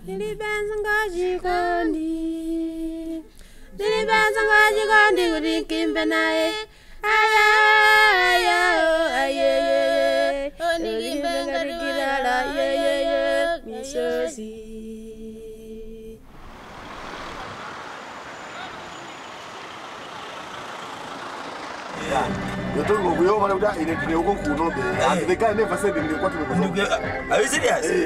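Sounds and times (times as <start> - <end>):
woman singing: 0.0 - 16.2.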